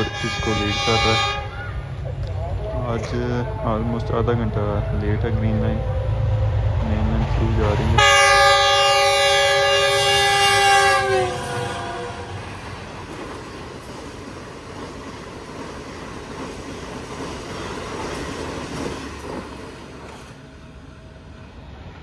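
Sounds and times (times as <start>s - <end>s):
locomotive air horn chord: 0.0s - 1.6s, 8.0s - 12.4s
train coaches passing at speed: 0.0s - 22.0s.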